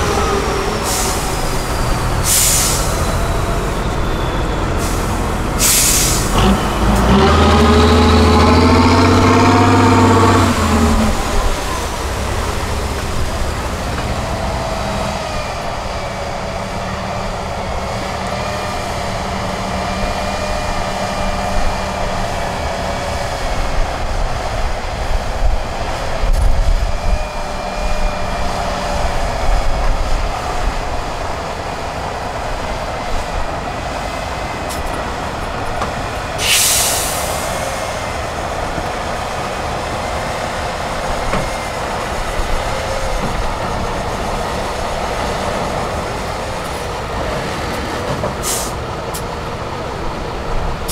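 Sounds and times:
truck engine under load: 0.0s - 50.9s
short burst of hiss: 2.2s - 3.1s, 4.8s - 6.4s, 36.4s - 37.8s.

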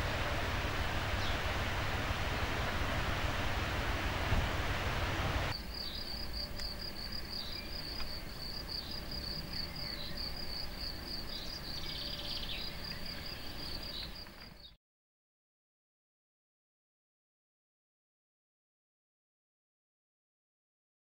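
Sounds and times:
rushing noise: 0.0s - 5.6s
cricket chirping: 5.5s - 14.6s
faint bird chirps: 5.7s - 14.8s.

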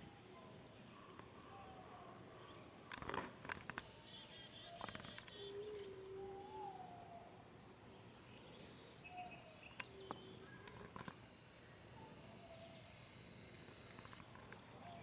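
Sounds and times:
faint high chirping: 3.7s - 15.0s.

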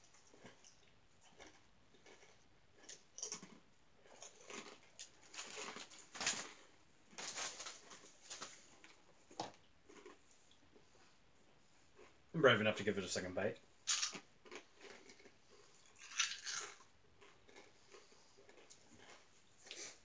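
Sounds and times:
crunchy snack being chewed: 0.0s - 6.8s, 8.7s - 10.6s, 13.8s - 20.0s.

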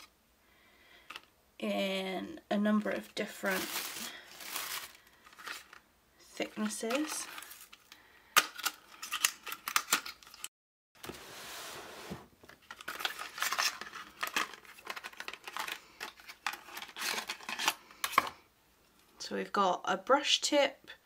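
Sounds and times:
cardboard pack crinkling: 3.0s - 5.8s, 6.4s - 10.5s, 12.4s - 18.3s
smooth sliding rustle: 11.0s - 12.3s.

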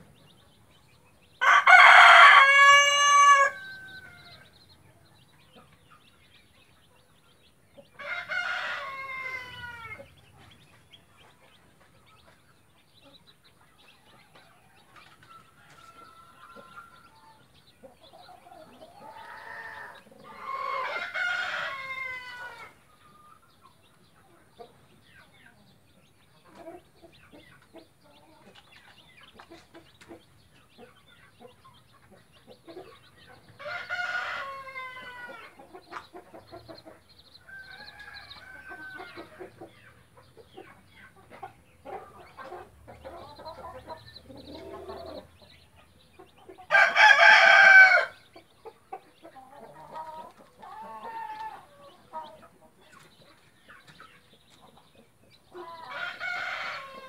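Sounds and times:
chicks peeping: 0.0s - 57.0s
rooster crowing: 1.4s - 4.4s, 8.0s - 10.0s, 19.0s - 22.7s, 46.7s - 48.2s, 55.8s - 57.0s.

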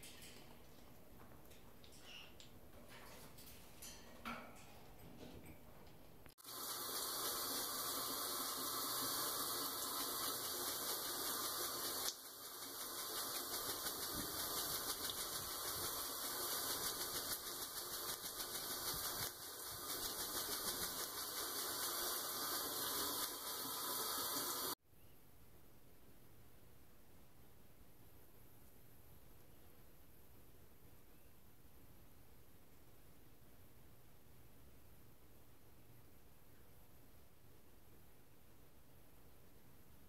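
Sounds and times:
shower water spraying: 6.4s - 24.8s.

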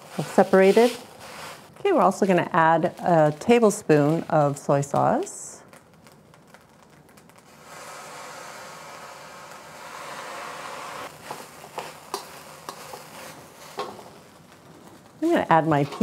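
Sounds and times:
metal spatula scraping a wok: 0.0s - 2.4s, 9.8s - 14.2s, 14.8s - 16.0s
sauce sizzling on hot rice: 0.0s - 4.3s, 5.9s - 15.4s.

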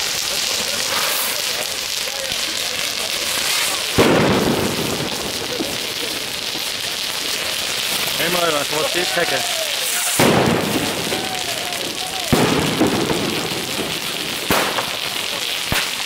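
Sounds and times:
fireworks crackling hiss: 0.0s - 16.0s
firework bang with rumble: 3.2s - 16.0s.

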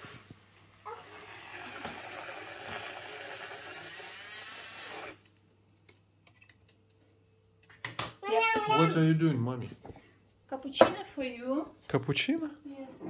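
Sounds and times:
coffee machine hissing: 1.0s - 5.3s.

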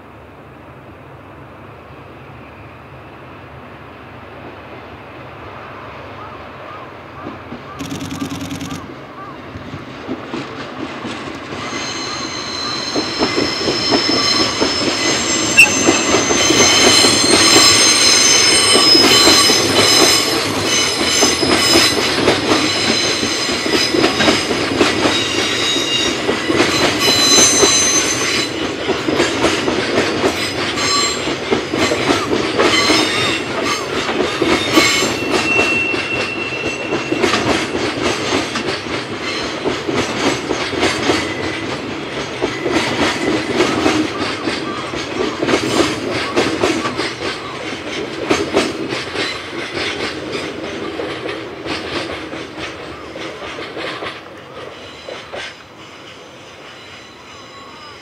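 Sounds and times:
train rumble: 7.0s - 57.7s
high-pitched wheel squeal: 11.6s - 21.9s, 25.2s - 28.5s, 34.8s - 37.6s
wheels clicking over rail joints: 36.9s - 55.7s.

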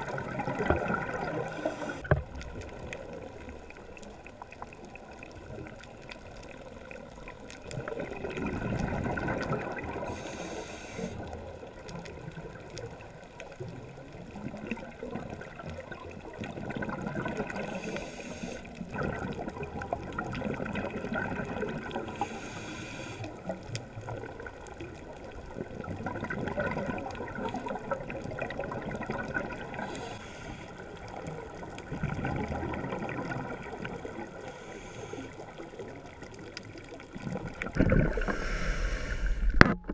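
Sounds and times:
underwater bubbles gurgling: 0.0s - 39.9s
regulator inhalation hiss: 1.5s - 2.1s, 10.1s - 11.3s, 17.6s - 18.7s, 22.2s - 23.3s, 29.8s - 30.8s, 34.4s - 35.5s, 38.1s - 39.6s.

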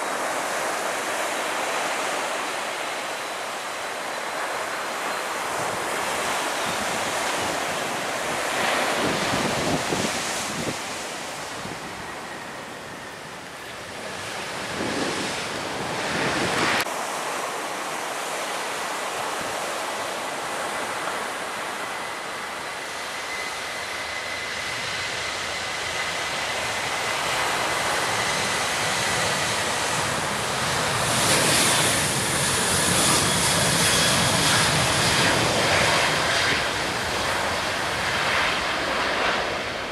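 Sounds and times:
surf washing on shore: 0.0s - 12.8s, 14.3s - 23.7s
airliner engine noise: 0.0s - 39.9s
faint jet engine whine: 0.0s - 39.9s
wind buffeting microphone: 5.4s - 16.9s.

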